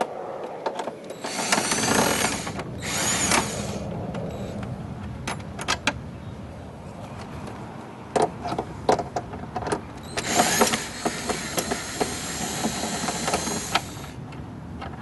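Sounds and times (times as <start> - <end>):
cordless drill running: 1.2 - 3.8, 10.1 - 14.2.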